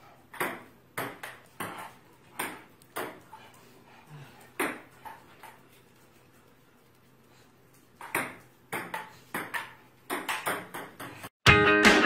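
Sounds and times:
ping-pong ball clicking: 0:08.0 - 0:11.1.

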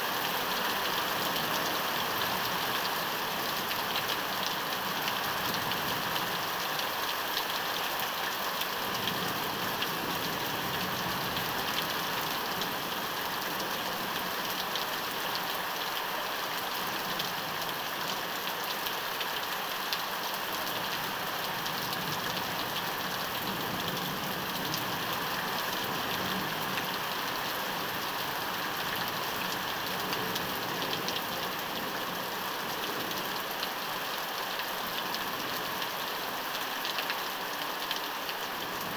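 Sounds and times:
heavy rain pouring: 0:00.0 - 0:38.9
raindrops pattering: 0:16.6 - 0:38.9.

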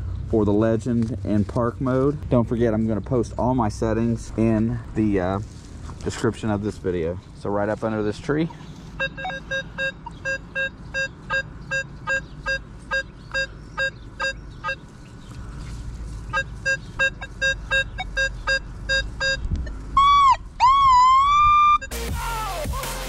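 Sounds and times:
metal detector swooping tone: 0:09.0 - 0:14.4, 0:16.3 - 0:22.0
metal detector low beeps: 0:09.0 - 0:14.8, 0:16.3 - 0:22.0.

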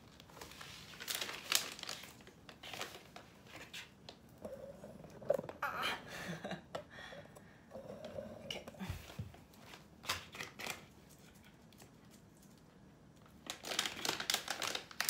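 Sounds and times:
plastic pouch rustling: 0:00.1 - 0:04.0, 0:13.4 - 0:15.0.

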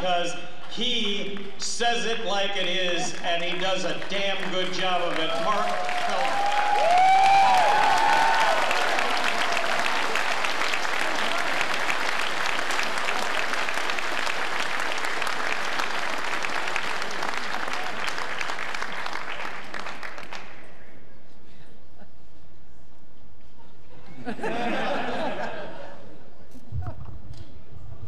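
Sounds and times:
audience applauding: 0:03.0 - 0:20.8.

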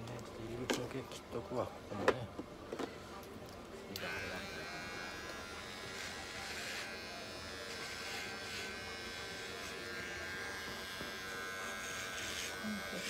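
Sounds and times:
electric hair clippers buzzing: 0:03.9 - 0:13.0.

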